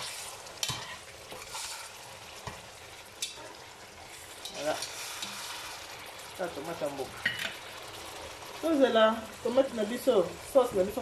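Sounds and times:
spatula scraping pan: 0:00.0 - 0:06.0
vegetables sizzling in frying pan: 0:00.0 - 0:11.0.

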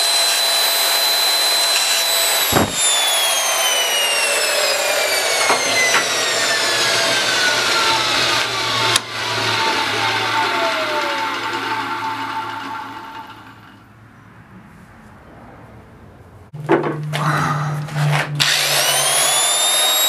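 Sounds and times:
grinding wheel whining: 0:00.0 - 0:13.9, 0:18.1 - 0:20.0
thump: 0:02.5 - 0:02.9.

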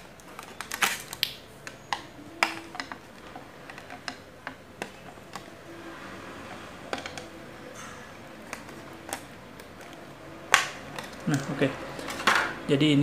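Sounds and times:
plastic packaging crinkling: 0:00.0 - 0:05.6.

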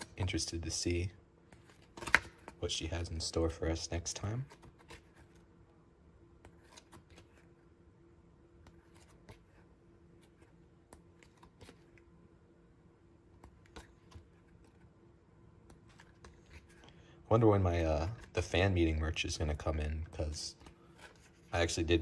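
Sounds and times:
book pages turning: 0:01.4 - 0:05.6, 0:06.4 - 0:07.7, 0:08.5 - 0:12.1, 0:13.3 - 0:15.0, 0:15.6 - 0:18.7, 0:20.1 - 0:22.0.

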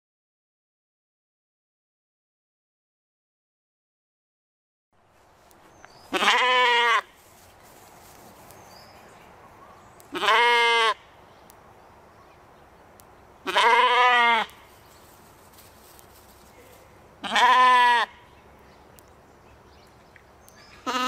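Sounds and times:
sheep bleating: 0:06.1 - 0:07.1, 0:10.1 - 0:11.0, 0:13.4 - 0:14.6, 0:17.2 - 0:18.2.

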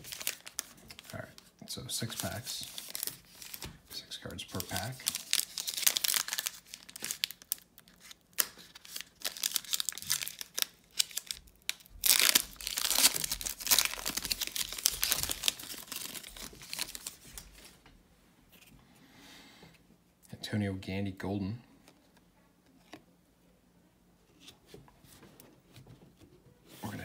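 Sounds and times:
foil wrapper crinkling and tearing: 0:00.0 - 0:01.4, 0:02.0 - 0:03.7, 0:04.5 - 0:17.7.

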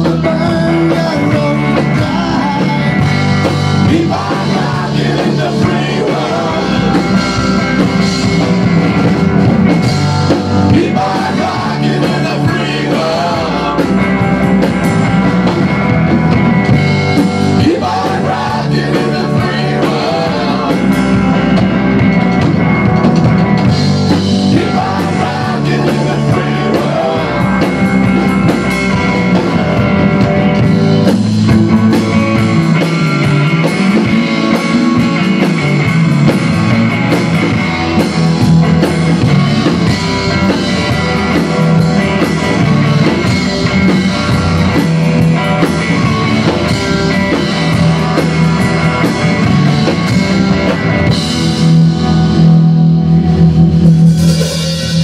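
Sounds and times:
person singing: 0:00.0 - 0:08.0, 0:10.6 - 0:14.7, 0:17.5 - 0:21.7, 0:24.1 - 0:29.1
distorted electric guitar: 0:00.0 - 0:55.0
drum kit: 0:00.0 - 0:55.0
electric bass: 0:00.0 - 0:55.0.

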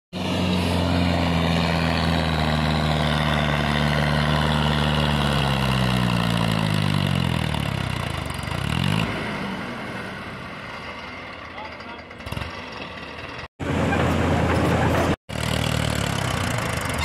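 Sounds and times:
tractor engine running under load: 0:10.9 - 0:17.0.

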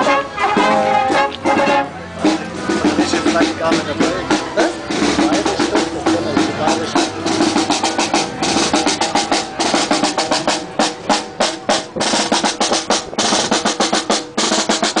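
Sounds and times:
brass horns: 0:00.0 - 0:15.0
snare drum march beat: 0:00.0 - 0:15.0
bass drum: 0:00.6 - 0:15.0.

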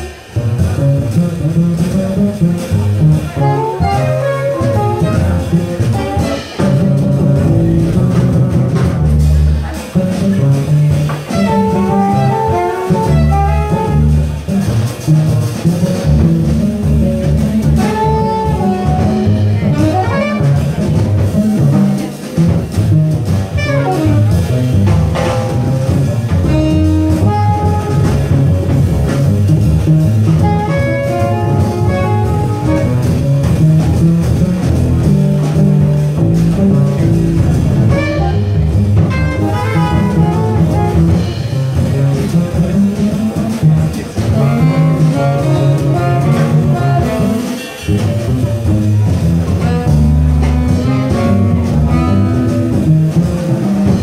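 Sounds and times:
double bass: 0:00.0 - 0:54.0
drums: 0:00.0 - 0:54.0
piano: 0:00.0 - 0:54.0
saxophone: 0:02.6 - 0:08.0, 0:11.2 - 0:14.5, 0:16.9 - 0:21.3, 0:23.5 - 0:25.2, 0:26.4 - 0:29.4, 0:30.1 - 0:35.0, 0:36.1 - 0:42.4, 0:43.9 - 0:54.0.

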